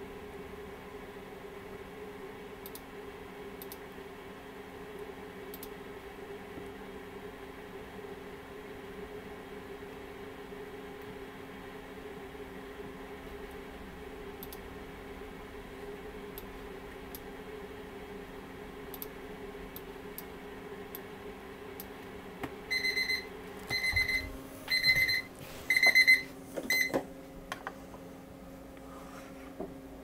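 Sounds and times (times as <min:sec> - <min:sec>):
timer alarm beeping: 0:22.7 - 0:27.0.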